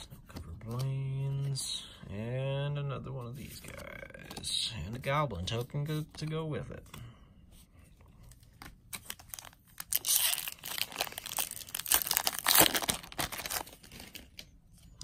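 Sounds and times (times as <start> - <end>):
foil wrapper crinkling: 9.1 - 14.3
foil wrapper ripping: 9.3 - 14.2.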